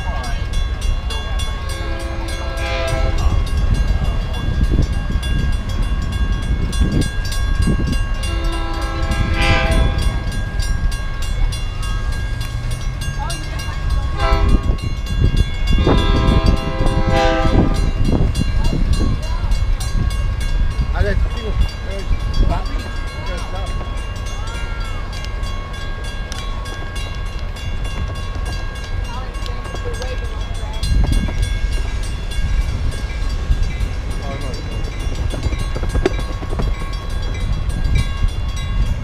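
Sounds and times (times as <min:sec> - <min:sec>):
low train rumble: 0:00.0 - 0:39.0
train horn chord blasts: 0:01.6 - 0:03.6, 0:08.2 - 0:10.3, 0:14.2 - 0:14.8, 0:15.8 - 0:18.1.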